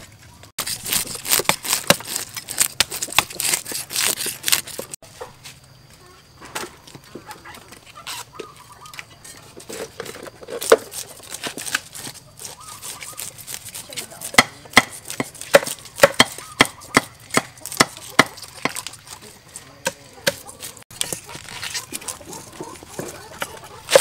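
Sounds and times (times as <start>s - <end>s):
cleaver chopping on wooden block: 14.2s - 18.9s, 19.8s - 24.0s.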